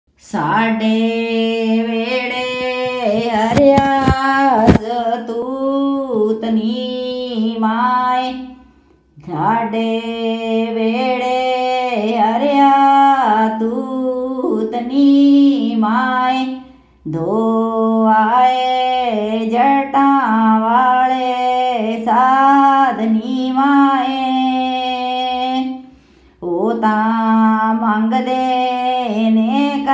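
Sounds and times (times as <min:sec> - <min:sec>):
woman singing wordless phrase: 0:00.2 - 0:08.6, 0:09.2 - 0:25.8, 0:26.4 - 0:29.9
woman singing held notes: 0:00.3 - 0:08.6
sharp knocks: 0:02.3 - 0:04.9.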